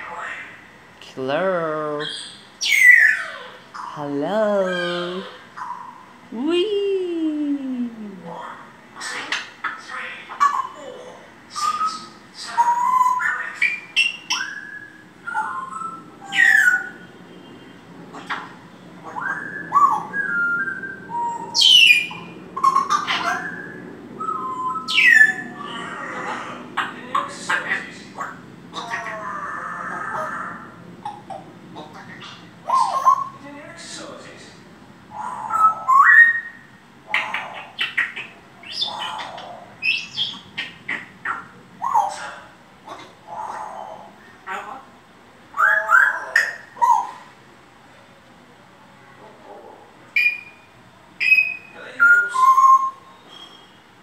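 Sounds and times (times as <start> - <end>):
parrot chirps and squawks: 0.0 - 0.8, 1.8 - 6.3, 8.2 - 17.2, 18.0 - 33.4, 35.1 - 47.4, 50.1 - 53.9
parrot whistling: 11.5 - 17.1, 18.2 - 25.9, 35.1 - 42.4, 50.2 - 53.9.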